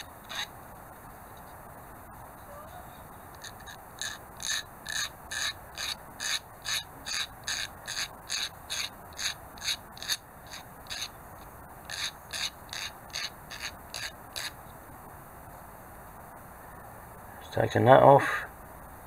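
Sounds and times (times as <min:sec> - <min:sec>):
sanding stick rasping on metal: 0:03.4 - 0:11.1, 0:11.9 - 0:14.5.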